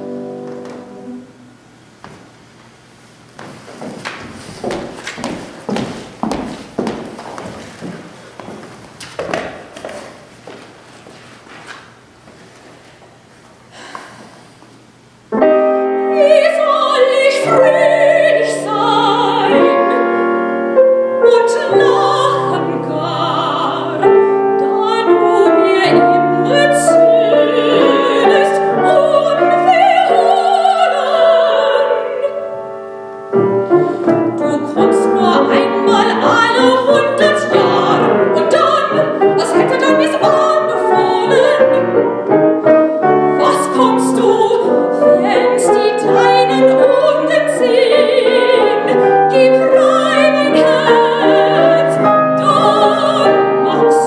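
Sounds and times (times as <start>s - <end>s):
piano accompaniment: 0.0s - 2.5s, 15.2s - 54.0s
soprano singing: 15.4s - 54.0s.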